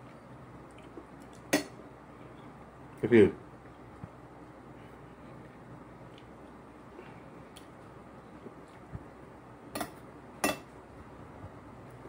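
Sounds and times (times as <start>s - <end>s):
low room background: 0.0s - 12.0s
cutlery clinking on plate: 9.8s - 10.7s.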